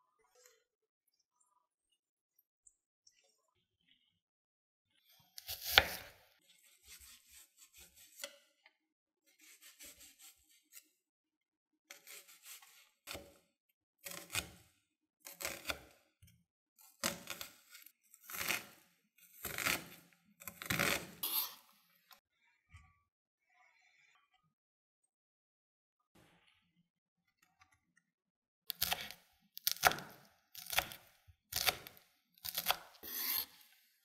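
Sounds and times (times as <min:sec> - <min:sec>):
knife slicing onion on wooden board: 0:05.4 - 0:06.2, 0:06.8 - 0:08.5, 0:09.4 - 0:10.9, 0:11.9 - 0:13.4, 0:14.0 - 0:14.6, 0:15.2 - 0:15.9, 0:17.0 - 0:21.7, 0:28.7 - 0:33.8.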